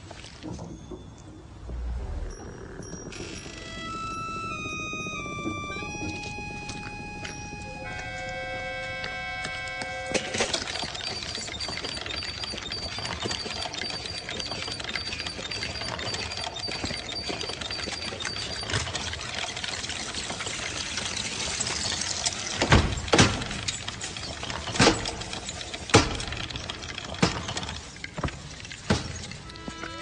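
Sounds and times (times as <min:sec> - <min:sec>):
toy bicycle wheels whirring: 0:02.4 - 0:08.4, 0:09.0 - 0:30.0.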